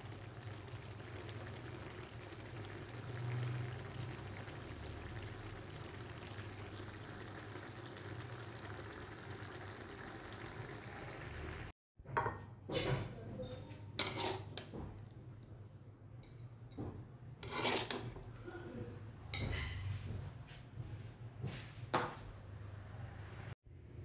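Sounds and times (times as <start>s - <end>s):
sauce simmering and bubbling: 0.0s - 11.7s
metal utensil scraping a wok: 14.0s - 14.7s, 17.4s - 18.3s.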